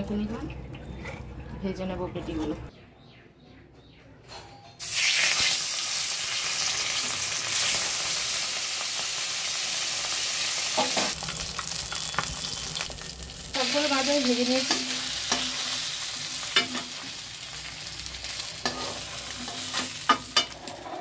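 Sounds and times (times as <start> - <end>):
fish sizzling in hot oil: 4.8 - 21.0
steel spatula clicking and scraping: 18.6 - 21.0.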